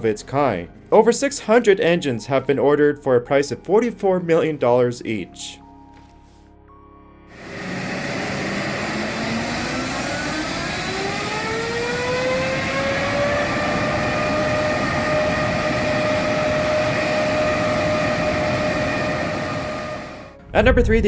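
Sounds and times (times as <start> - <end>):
jet engine whine: 7.3 - 20.4
jet noise rushing: 7.3 - 21.0.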